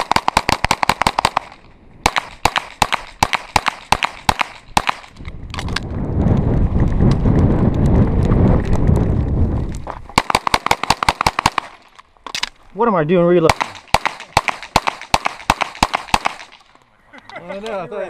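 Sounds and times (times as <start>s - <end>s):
pistol fire in rapid strings: 0.0s - 5.1s, 10.2s - 11.8s, 13.4s - 16.6s
wind rumble on microphone: 4.7s - 10.2s.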